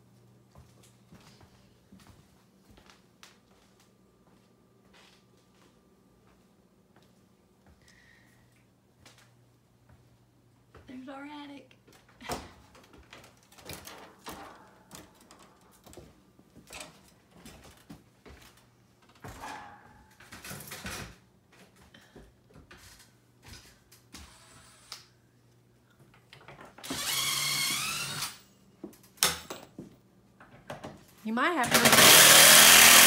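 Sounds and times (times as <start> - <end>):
power tool whine: 26.9 - 28.4, 31.7 - 33.0.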